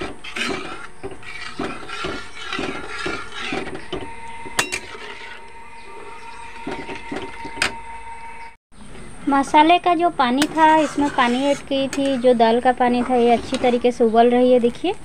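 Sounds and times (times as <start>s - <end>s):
ladle scraping metal pan: 0.0s - 7.8s, 9.3s - 14.2s.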